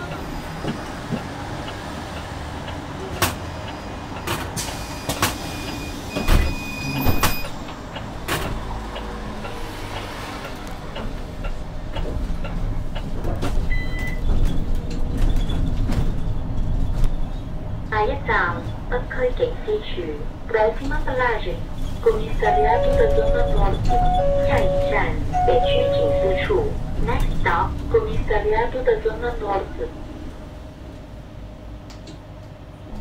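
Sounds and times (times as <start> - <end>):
bus low rumble: 0.0 - 33.0
short beeps: 5.0 - 7.5, 22.4 - 26.5.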